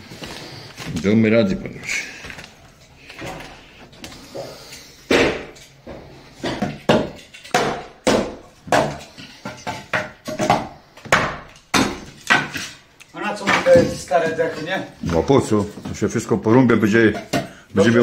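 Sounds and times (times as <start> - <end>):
hatchet chopping wood: 6.4 - 9.1, 9.8 - 12.6.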